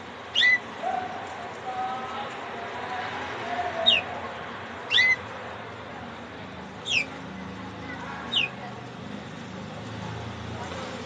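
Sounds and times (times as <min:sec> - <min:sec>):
canary whistled calls: 0:00.3 - 0:01.1, 0:03.7 - 0:04.1, 0:04.9 - 0:05.2, 0:06.8 - 0:07.1, 0:08.3 - 0:08.6.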